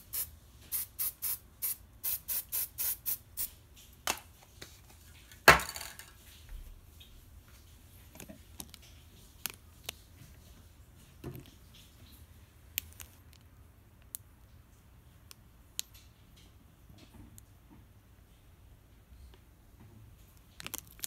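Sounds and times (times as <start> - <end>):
spray can hissing: 0.0 - 3.6.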